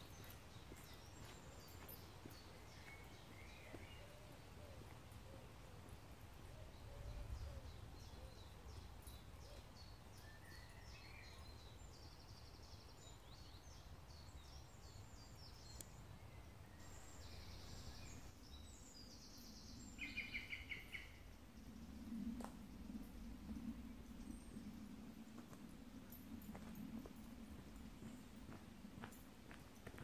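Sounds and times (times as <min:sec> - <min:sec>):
small birds chirping and singing: 0:00.0 - 0:05.0, 0:05.8 - 0:21.8.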